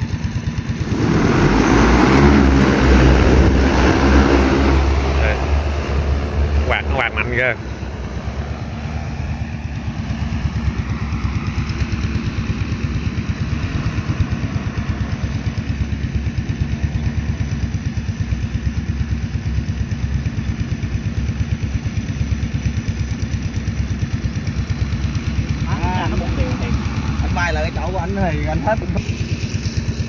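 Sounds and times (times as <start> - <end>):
drone rotors buzzing: 0.0 - 17.8.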